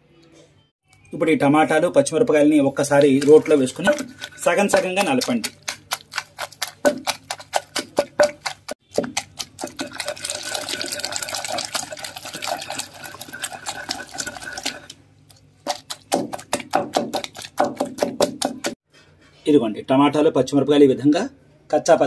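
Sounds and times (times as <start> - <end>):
pestle pounding in stone mortar: 2.8 - 14.9, 15.6 - 18.8.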